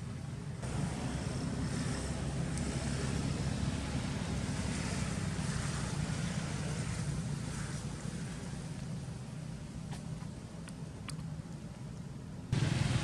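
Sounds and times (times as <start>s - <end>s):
hiss: 0.6s - 9.0s.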